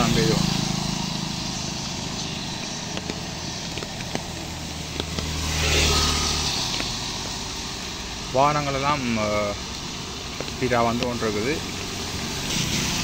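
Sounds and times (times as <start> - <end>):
motorcycle engine hum: 0.0 - 13.0
tyres hissing on wet road: 0.0 - 13.0
heavy rain: 4.5 - 13.0.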